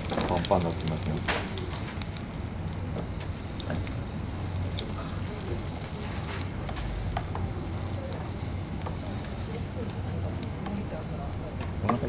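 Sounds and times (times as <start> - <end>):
hot oil sizzling: 0.0 - 12.0
sharp crackles and pops: 0.0 - 12.0
steady low hum: 0.0 - 12.0.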